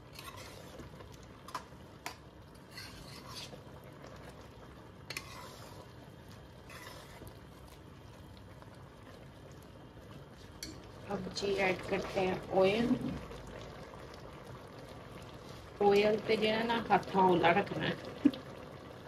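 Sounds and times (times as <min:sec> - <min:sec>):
spoon scraping metal pot: 0:00.0 - 0:00.8, 0:01.5 - 0:03.6, 0:05.0 - 0:05.9, 0:06.6 - 0:07.2.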